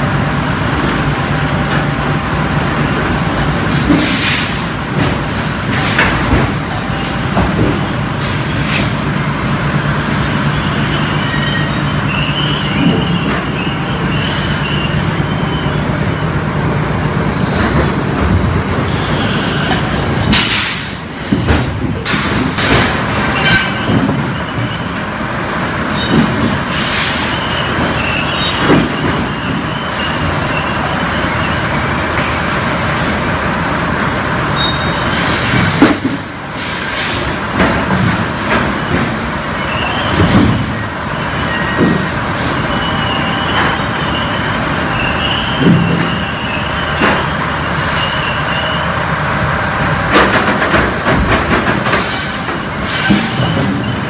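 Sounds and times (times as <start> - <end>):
chain conveyors clanking and squealing: 5.7 - 8.5, 9.7 - 16.0, 18.9 - 25.1, 25.8 - 31.8, 34.6 - 35.8, 36.9 - 49.0, 51.1 - 54.0.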